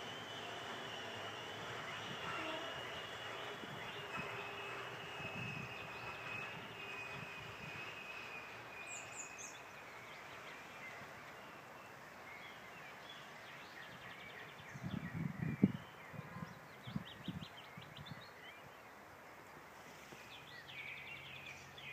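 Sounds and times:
train moving away: 0.0s - 16.0s.

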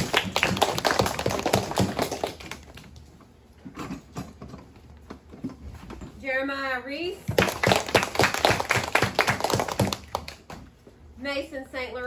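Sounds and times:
children clapping: 0.0s - 2.9s, 7.3s - 10.6s.

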